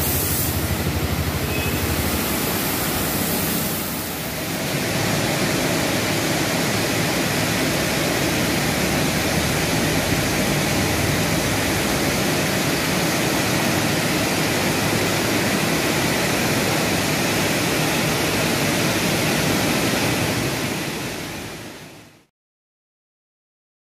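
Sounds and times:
car wash machinery hissing: 0:00.0 - 0:22.0.

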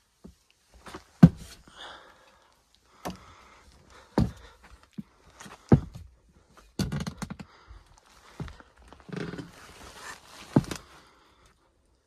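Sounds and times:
rustling of insulation: 0:02.9 - 0:11.4
heavy thuds on attic joists: 0:04.1 - 0:04.6, 0:05.6 - 0:06.1.

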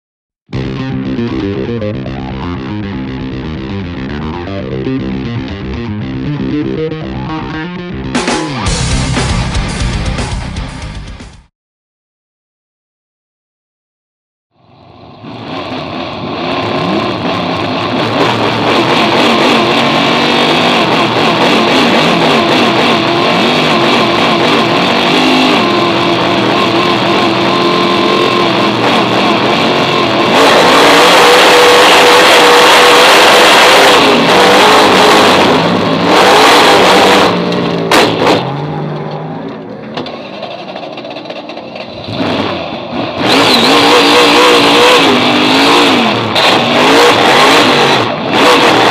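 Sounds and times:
race car engine at speed: 0:00.5 - 0:10.9, 0:14.6 - 0:48.9.

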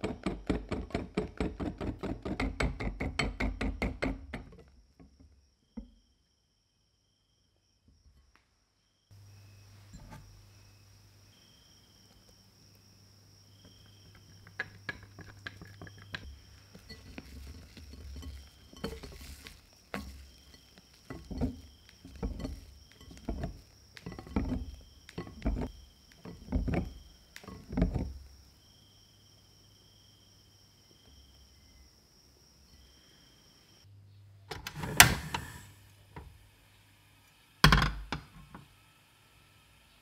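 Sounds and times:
soft wet whisk strokes: 0:16.3 - 0:25.7.

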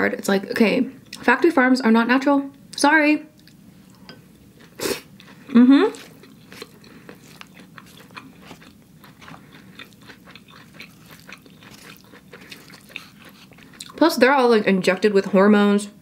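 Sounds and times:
chewing noodles: 0:04.6 - 0:14.0.

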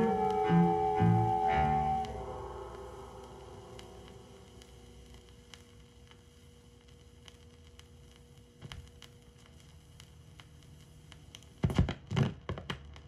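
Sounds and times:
faint steady tone: 0:00.0 - 0:07.0
record surface hiss: 0:00.0 - 0:13.0.

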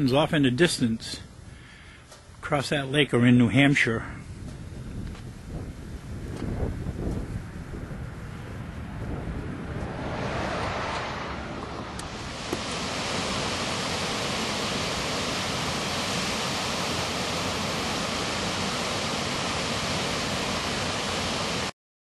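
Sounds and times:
small waterfall rushing: 0:12.0 - 0:21.7.

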